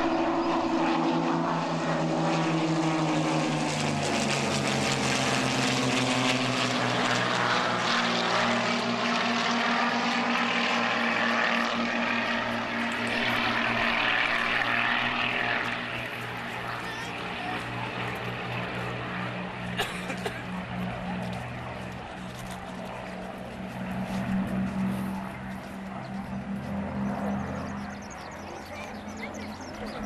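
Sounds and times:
propeller planes droning overhead: 0:00.0 - 0:30.0.

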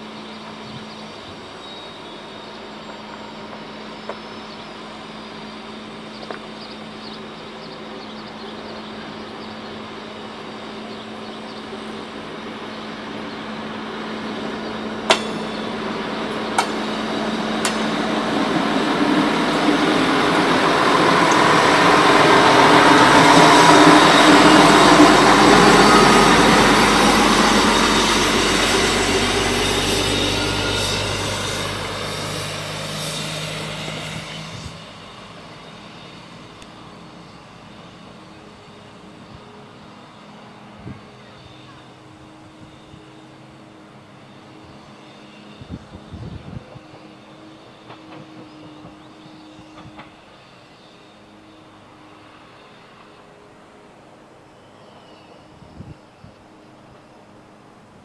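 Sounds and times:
railbus engine passing: 0:00.0 - 0:58.0.

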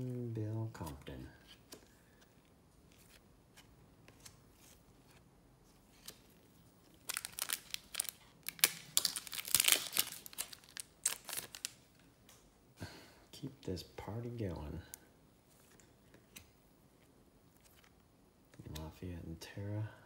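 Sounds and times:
wrapper crinkling as torn open: 0:06.9 - 0:12.0.

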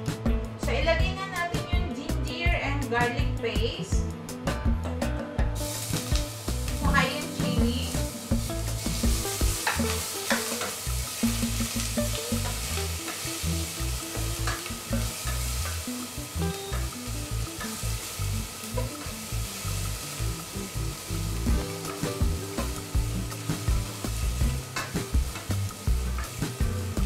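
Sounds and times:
paste sizzling in hot oil: 0:05.6 - 0:27.0.

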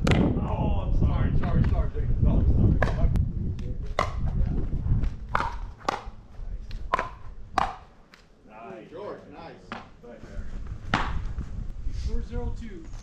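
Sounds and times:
paddles striking plastic ball: 0:05.3 - 0:08.2.

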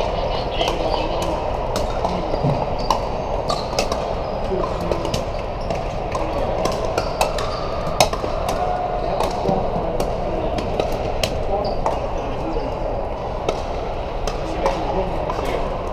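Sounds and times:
background din of hall: 0:00.0 - 0:15.9
paddles hitting plastic balls: 0:00.6 - 0:12.0.

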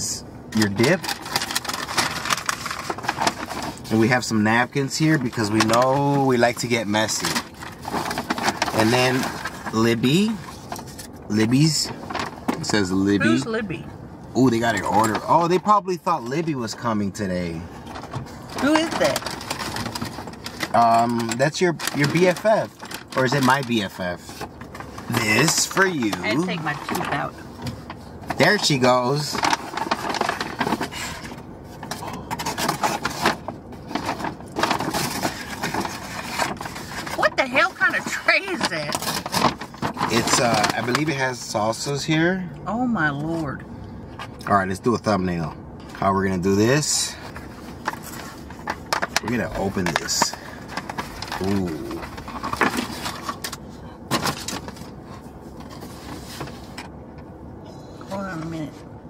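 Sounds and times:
paper bag rustling: 0:00.7 - 0:13.3, 0:17.8 - 0:41.3, 0:46.7 - 0:56.8
aluminium foil crinkling: 0:00.8 - 0:04.1, 0:18.3 - 0:27.3.

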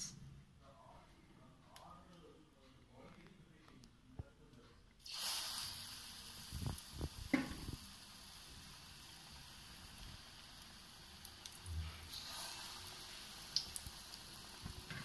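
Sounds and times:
oil sizzling: 0:05.0 - 0:15.0.

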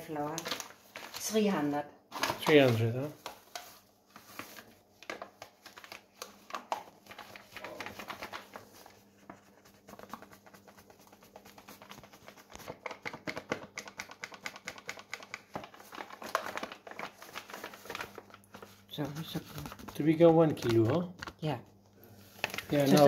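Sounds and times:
paper bag crinkling: 0:00.2 - 0:09.2, 0:15.3 - 0:21.1, 0:22.2 - 0:23.0.

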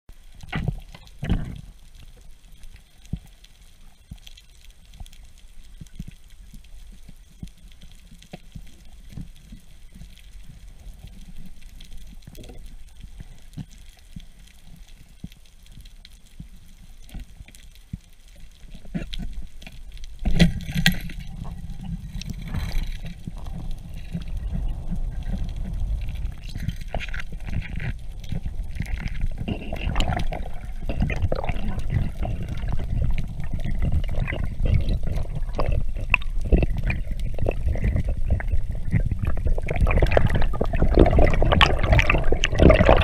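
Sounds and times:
low underwater rumble: 0:00.1 - 0:43.0
small underwater clicks: 0:00.1 - 0:43.0
rushing water noise: 0:20.4 - 0:43.0.

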